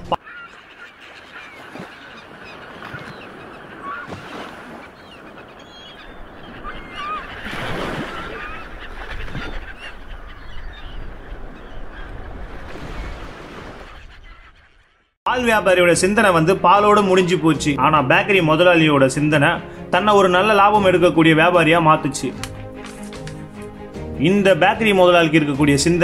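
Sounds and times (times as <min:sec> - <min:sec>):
birds calling: 0:00.0 - 0:26.0.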